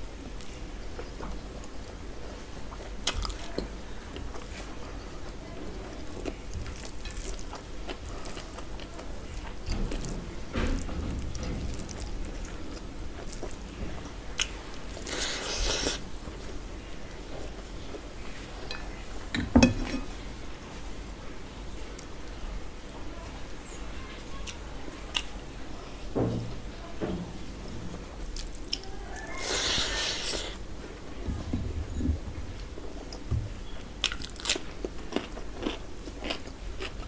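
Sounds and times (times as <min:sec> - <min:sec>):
chewing: 0:00.4 - 0:16.4, 0:28.3 - 0:30.6, 0:34.0 - 0:37.0
fingers squishing rice: 0:14.3 - 0:16.1.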